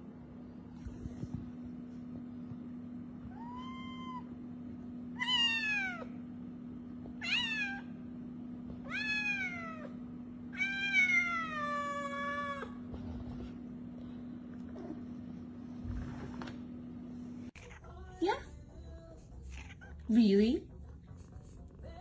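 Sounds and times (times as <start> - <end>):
cat meowing: 3.3 - 4.3, 5.2 - 6.1, 8.8 - 9.9, 19.5 - 20.0.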